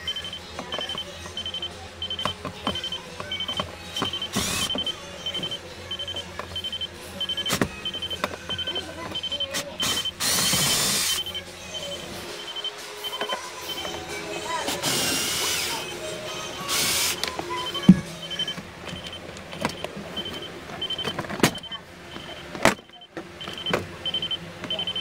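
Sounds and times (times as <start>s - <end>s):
car warning chime beeping: 0.0s - 14.0s, 15.3s - 16.1s, 17.5s - 25.0s
cordless drill whirring: 4.0s - 4.9s, 9.8s - 11.3s, 14.8s - 15.9s, 16.7s - 17.2s.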